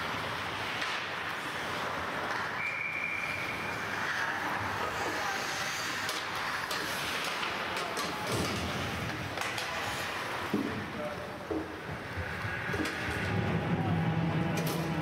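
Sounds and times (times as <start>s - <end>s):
skates on ice: 0.0s - 14.0s
stick or puck clacks: 6.0s - 9.8s.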